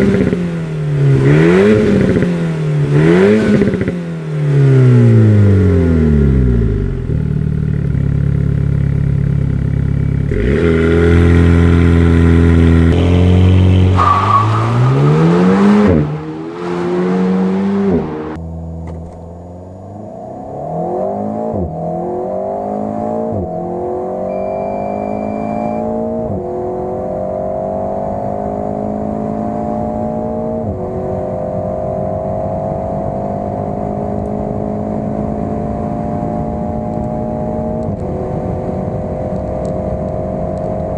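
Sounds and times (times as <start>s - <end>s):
car engine accelerating hard: 0.0s - 40.9s
short high beep: 24.2s - 26.0s.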